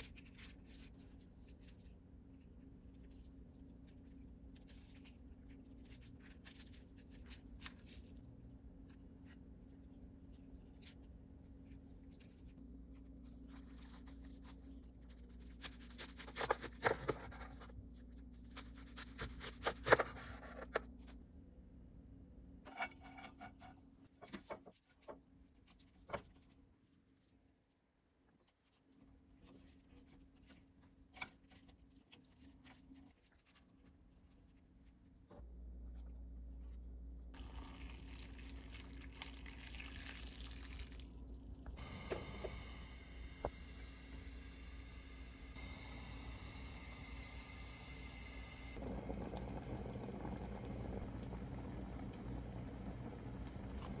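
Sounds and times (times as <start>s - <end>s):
broth pouring into a pot: 37.3s - 41.2s, 48.8s - 54.0s.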